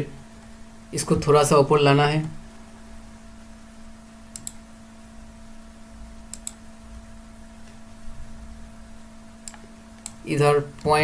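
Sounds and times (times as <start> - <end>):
faint steady hum: 0.0 - 11.0
computer mouse clicking: 4.3 - 4.6, 6.3 - 6.6, 9.4 - 10.2.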